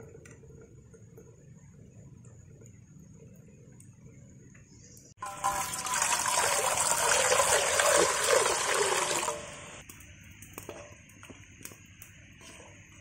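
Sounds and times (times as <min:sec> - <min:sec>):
water pouring into metal pot: 0:05.2 - 0:09.8.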